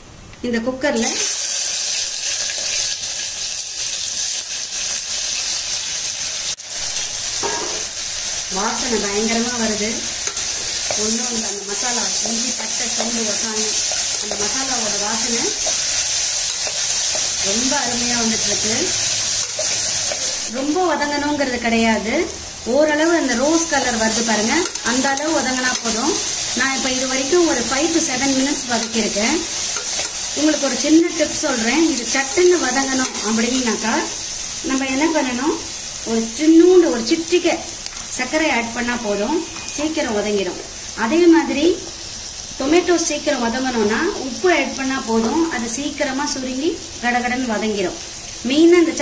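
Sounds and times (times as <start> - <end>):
onions sizzling in hot oil: 0.9 - 49.0
spoon stirring: 12.0 - 17.9, 19.1 - 20.5, 24.4 - 26.3, 28.1 - 30.3.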